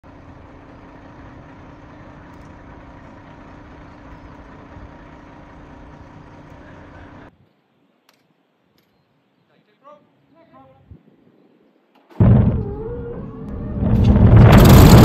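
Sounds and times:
fuel truck engine and pump hum: 0.0s - 7.4s.

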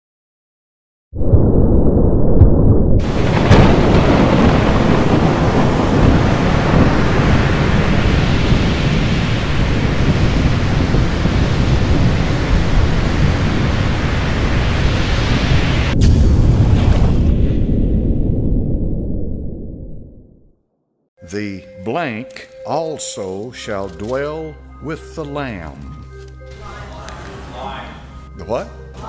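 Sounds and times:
rolling thunder: 1.2s - 20.6s
thunder crack: 1.2s - 20.6s
heavy rain: 3.0s - 17.0s.

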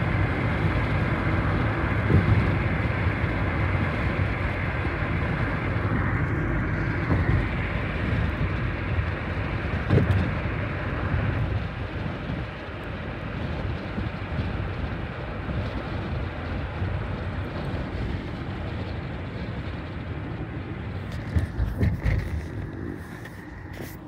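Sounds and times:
car road noise: 0.0s - 24.0s.

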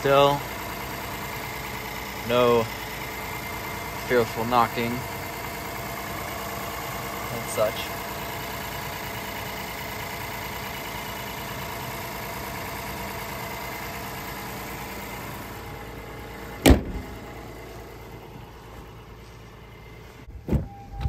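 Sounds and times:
car engine idling: 0.0s - 21.0s
car hood slamming shut: 16.6s - 17.2s, 20.4s - 20.8s.

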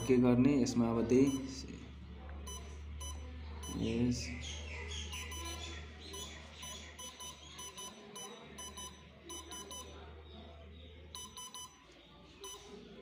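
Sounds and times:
keypad beeps: 0.0s - 0.3s, 1.2s - 1.6s, 2.4s - 3.9s, 5.1s - 10.1s, 11.1s - 12.8s.

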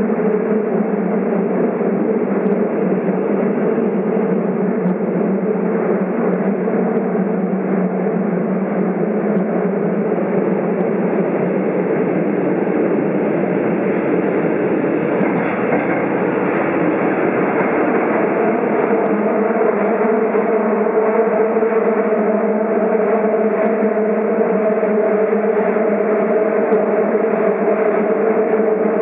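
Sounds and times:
constant low hum: 0.0s - 20.6s
subway train wheels rumbling: 0.0s - 29.0s.

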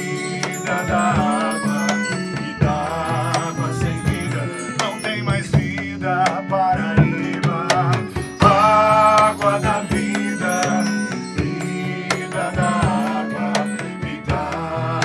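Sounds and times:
acoustic guitar: 0.0s - 15.0s
flute: 0.0s - 15.0s
hand percussion with rattle: 0.0s - 15.0s
man singing: 0.0s - 15.0s.

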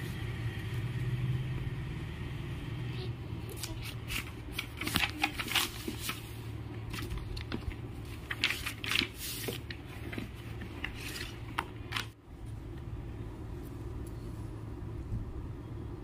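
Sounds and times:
paper rustling and crinkling: 3.5s - 12.2s.

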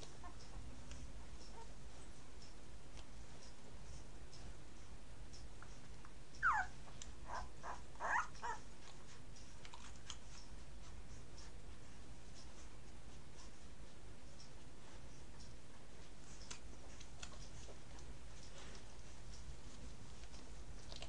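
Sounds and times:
steady low hum: 0.0s - 21.0s
puppies squeaking: 6.4s - 8.7s.

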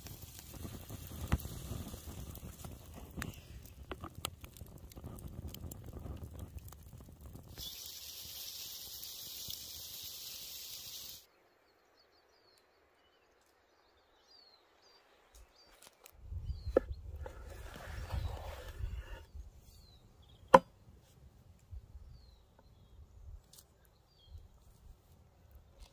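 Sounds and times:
campfire crackling: 0.0s - 11.2s
loud steady hiss of fire: 0.0s - 11.3s.

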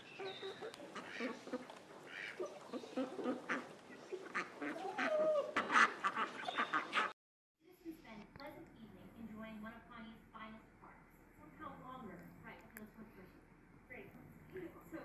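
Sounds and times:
poultry clucking and squawking: 0.0s - 7.1s.

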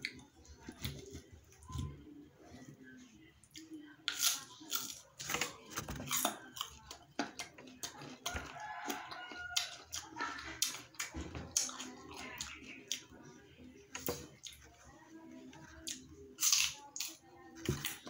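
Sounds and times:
wet chewing and crunching: 3.4s - 13.2s, 15.6s - 18.0s.

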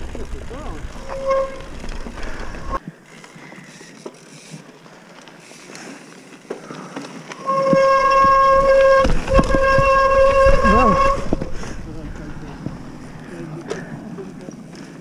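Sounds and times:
bike tyres rolling over gravel: 0.0s - 15.0s
wind: 0.0s - 15.0s
high-pitched buzz from bike: 7.4s - 11.7s.

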